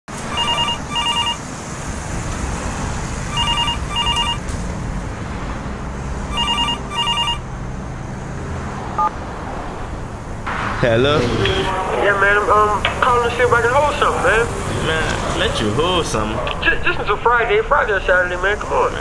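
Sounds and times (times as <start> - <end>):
telephone ringing: 0.2 - 1.5, 3.3 - 4.5, 6.3 - 7.5.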